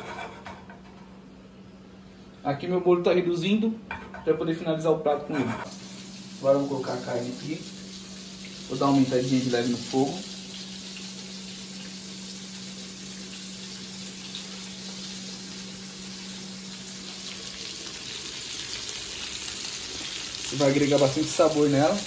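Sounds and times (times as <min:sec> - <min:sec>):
butter and meat sizzling in pan: 0:05.6 - 0:22.0.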